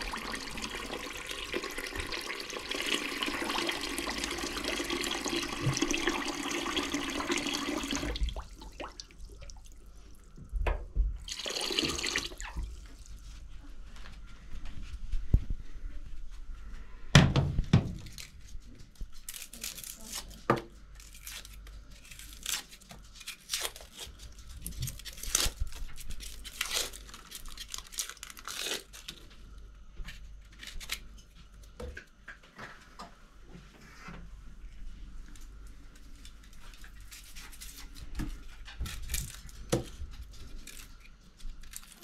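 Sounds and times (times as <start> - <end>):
onion skin crackling and tearing: 18.0 - 29.4, 30.2 - 31.1, 36.2 - 42.0.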